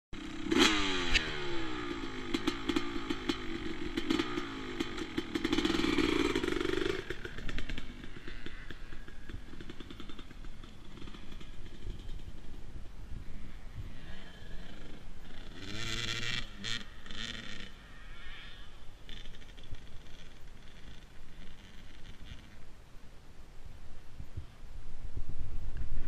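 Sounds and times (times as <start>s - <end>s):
motocross bike engine revving: 0.2s - 12.7s, 13.3s - 22.6s.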